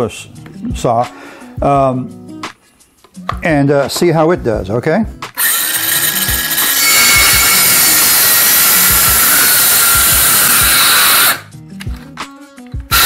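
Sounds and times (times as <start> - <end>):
circular saw cutting wood: 5.4 - 11.5.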